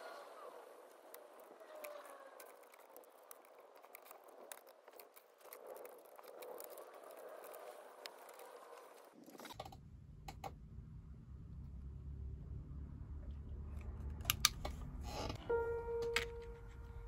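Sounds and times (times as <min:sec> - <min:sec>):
plastic model train cars clicking: 0:00.8 - 0:10.5.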